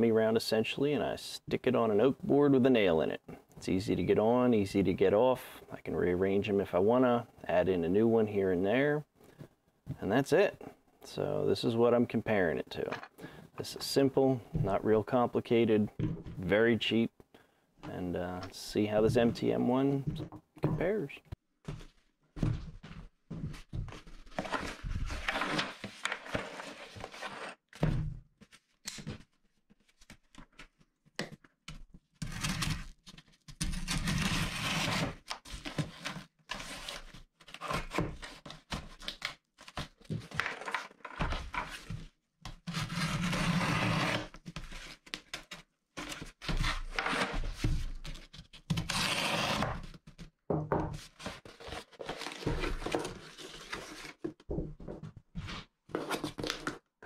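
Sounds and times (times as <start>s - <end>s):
cardboard scraping and rustling: 23.5s - 27.6s, 51.0s - 54.3s.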